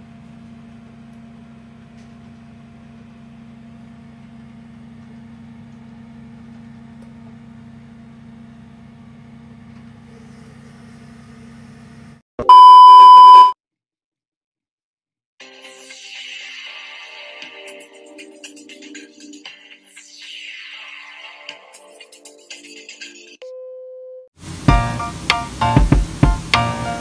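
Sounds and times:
loud electronic beep: 0:12.4 - 0:13.6.

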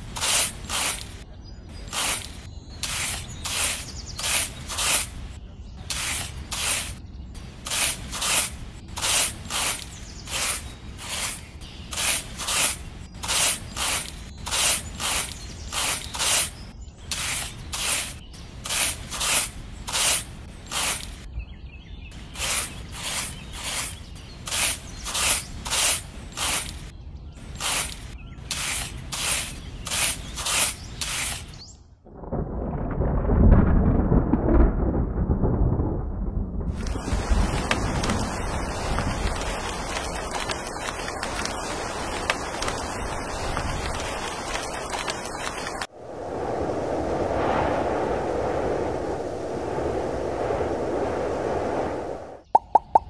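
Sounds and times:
stick scraping in sand: 0:00.0 - 0:01.2, 0:01.8 - 0:21.3, 0:22.2 - 0:31.6.

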